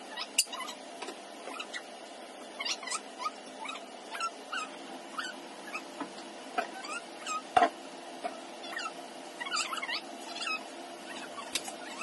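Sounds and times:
puppy whimpering: 0:08.7 - 0:12.0.

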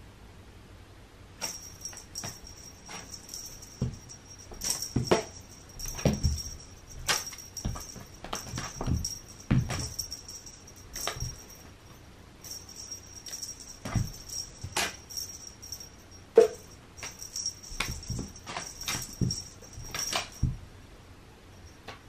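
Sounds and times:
cats thumping on carpet: 0:01.4 - 0:11.6, 0:12.4 - 0:15.3, 0:17.0 - 0:20.6.

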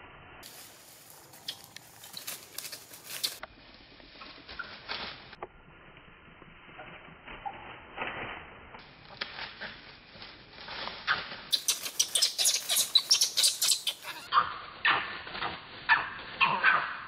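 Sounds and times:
dry leaves rustling and crackling: 0:00.4 - 0:05.4, 0:08.8 - 0:17.0.

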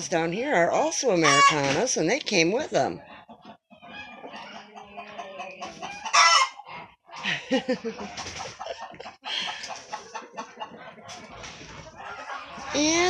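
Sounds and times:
chickens clucking: 0:00.0 - 0:13.0
loud chicken call: 0:05.7 - 0:06.6.

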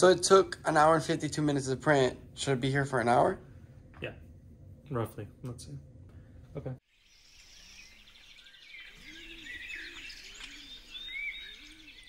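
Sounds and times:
small birds chirping: 0:06.8 - 0:12.0.

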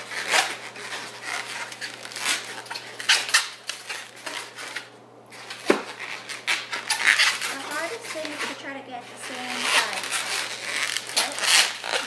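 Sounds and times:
rubber balloons rubbing and scraping: 0:00.0 - 0:12.0.

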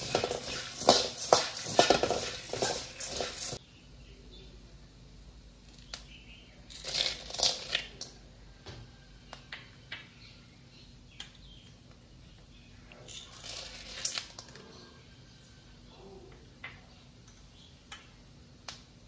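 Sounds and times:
puffed rice rustling in a metal pan: 0:00.0 - 0:03.6.

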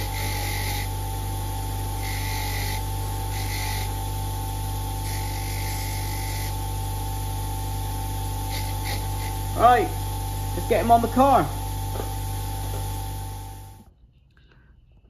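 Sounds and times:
metal scraping on grinding wheel: 0:00.0 - 0:04.2, 0:04.9 - 0:06.8, 0:08.0 - 0:13.8
bench grinder motor humming: 0:00.0 - 0:13.9.

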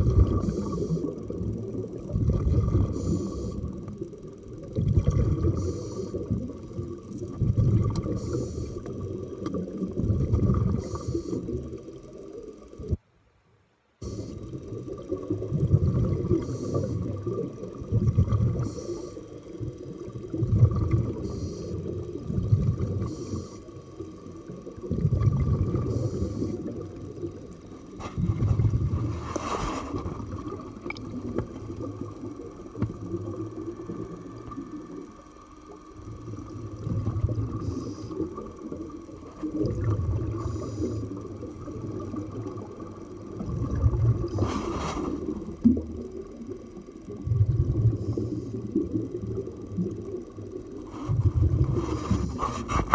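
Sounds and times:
exhaled bubbles underwater: 0:00.0 - 0:13.0, 0:14.0 - 0:52.9
regulator hisses: 0:00.3 - 0:01.2, 0:02.8 - 0:03.7, 0:05.5 - 0:06.4, 0:08.1 - 0:09.0, 0:16.4 - 0:17.4, 0:18.6 - 0:19.5, 0:21.2 - 0:22.0, 0:23.0 - 0:24.0.

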